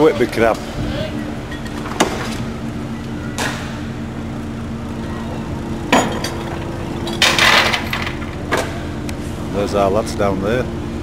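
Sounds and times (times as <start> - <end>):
low mechanical hum: 0.0 - 11.0
short clattering rattle: 5.9 - 8.7.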